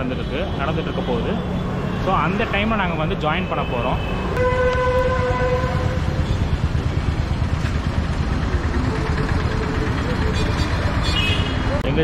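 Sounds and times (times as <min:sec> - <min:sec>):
traffic rumble: 0:00.0 - 0:12.0
vehicle horn: 0:04.0 - 0:06.4, 0:08.9 - 0:11.7.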